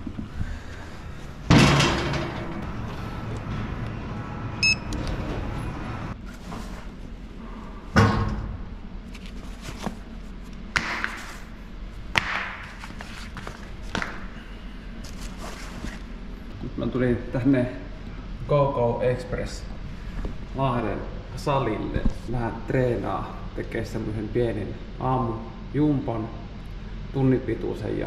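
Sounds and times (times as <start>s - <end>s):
short high beep: 4.6s - 4.9s.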